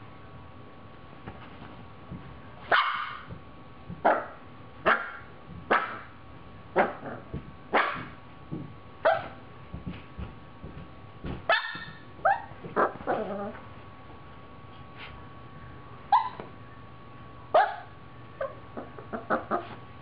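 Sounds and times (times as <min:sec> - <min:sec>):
puppy play barks: 0:02.6 - 0:03.3, 0:04.0 - 0:06.1, 0:06.8 - 0:08.2, 0:09.0 - 0:09.4, 0:11.5 - 0:13.6, 0:17.6 - 0:19.8.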